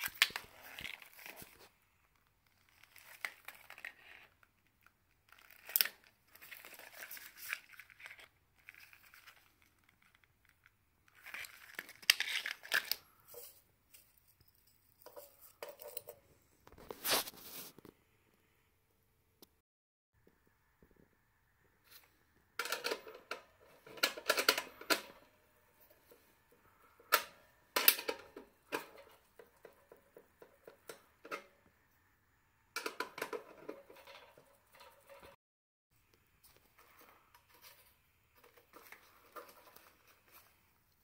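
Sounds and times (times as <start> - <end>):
spanner clinking and scraping on metal: 14.5 - 16.2, 32.8 - 35.4.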